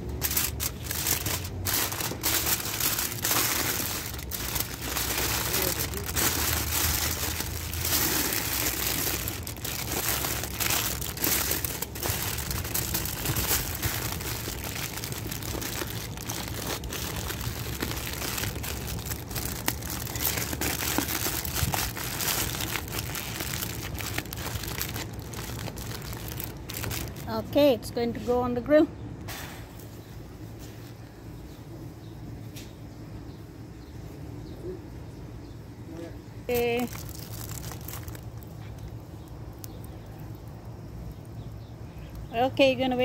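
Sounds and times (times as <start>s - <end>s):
plastic tub crinkling: 0.0s - 27.6s, 36.5s - 40.4s.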